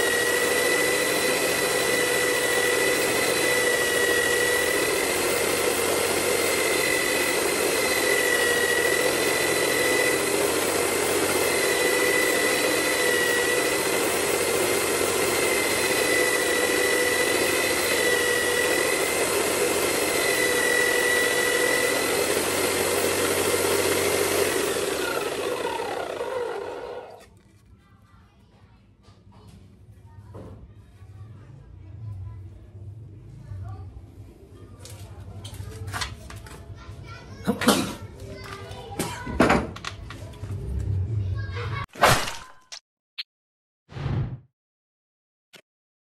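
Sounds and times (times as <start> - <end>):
drill spinning down: 0.0 - 27.3
electric drill motor whine: 0.0 - 27.3.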